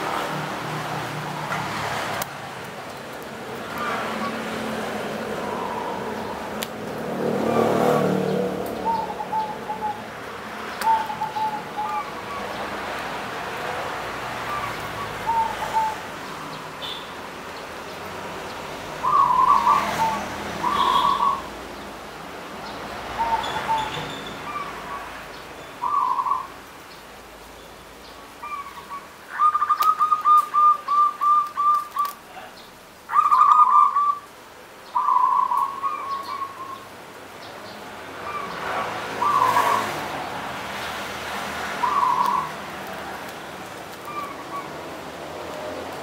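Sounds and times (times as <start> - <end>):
dove cooing: 5.2 - 6.5, 8.8 - 10.1, 10.8 - 12.6, 14.4 - 16.6, 19.0 - 21.5, 23.2 - 25.1, 25.8 - 26.5, 28.4 - 32.2, 33.1 - 34.2, 35.0 - 36.8, 38.2 - 40.0, 41.8 - 43.2, 44.0 - 44.9.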